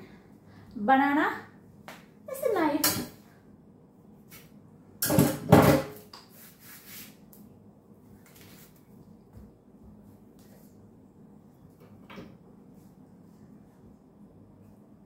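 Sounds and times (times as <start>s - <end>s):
soft handling of banana peel: 6.2s - 11.8s.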